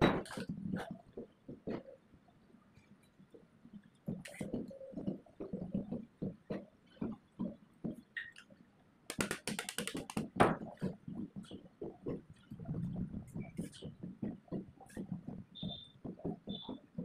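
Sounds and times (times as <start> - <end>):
knocks and rustles of tape: 4.1 - 17.0
sharp scratchy clicks: 9.1 - 11.7.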